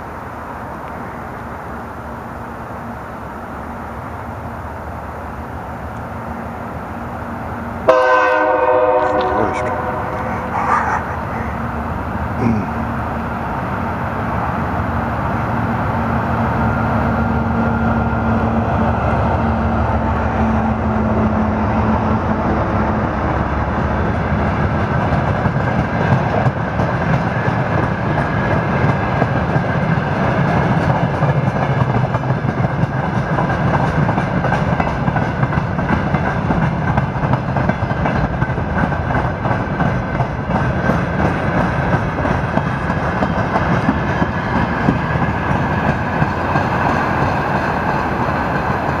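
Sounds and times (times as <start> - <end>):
train wheels clattering over rail joints: 24.7 - 49.0.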